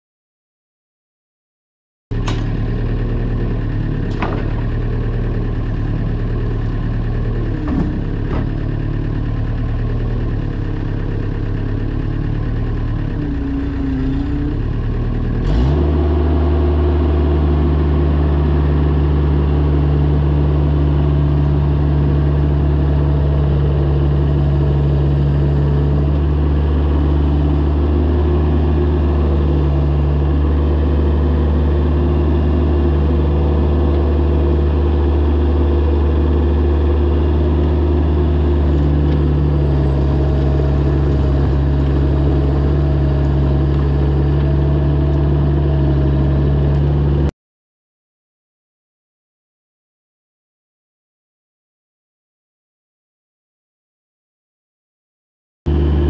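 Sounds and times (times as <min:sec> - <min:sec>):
mini excavator engine running: 0:02.1 - 0:47.3, 0:55.7 - 0:56.0.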